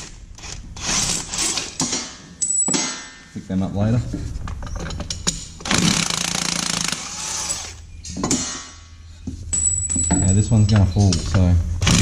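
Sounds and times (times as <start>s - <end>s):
cordless drill spinning: 5.7s - 7.8s.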